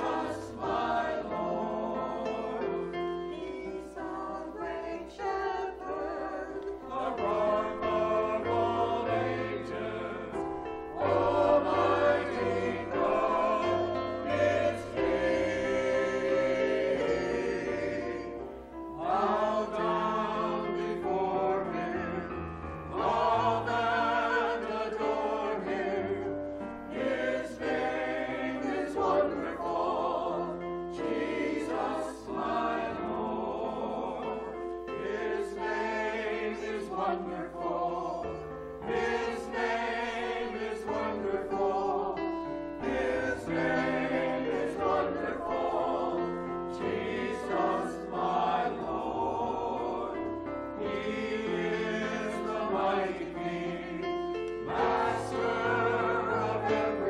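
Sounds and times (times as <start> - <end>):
church choir singing: 0.0 - 57.0.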